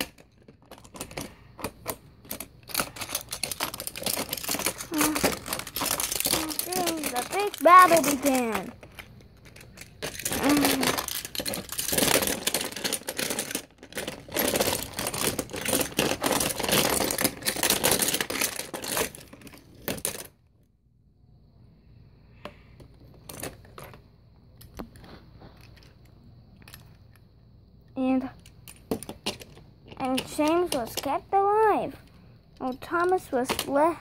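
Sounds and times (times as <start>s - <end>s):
toy trains clattering together: 0.0s - 20.4s, 23.1s - 24.0s, 28.1s - 32.0s, 32.6s - 33.9s.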